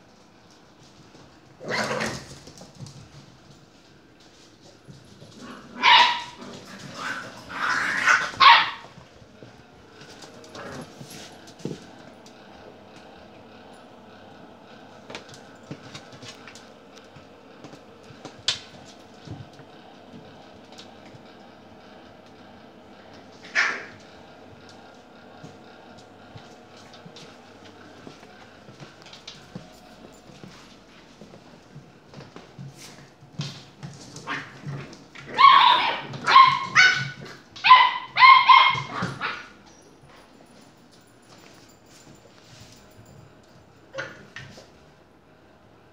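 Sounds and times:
puppies yipping and barking: 0:05.8 - 0:06.4, 0:35.3 - 0:39.6
puppy claws clicking on floor: 0:15.1 - 0:19.7.

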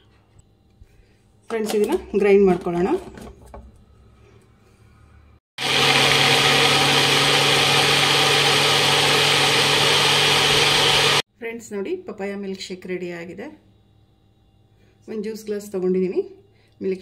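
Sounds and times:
blender motor running: 0:05.6 - 0:11.2.

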